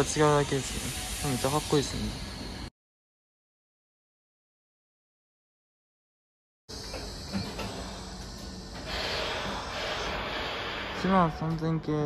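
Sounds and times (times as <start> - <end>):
air hiss: 0.0 - 2.7, 6.8 - 11.8
electric train humming: 0.0 - 2.7, 6.7 - 12.0.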